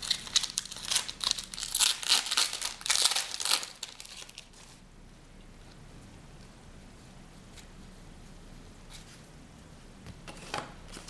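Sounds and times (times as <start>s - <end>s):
wrapper tearing and crinkling: 0.0s - 4.8s.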